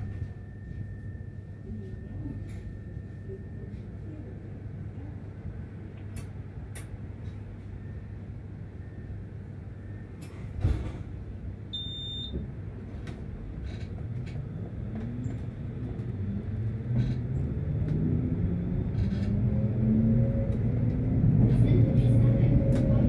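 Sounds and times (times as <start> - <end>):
tram rumbling: 0.0 - 23.0
short high beep: 11.8 - 12.3.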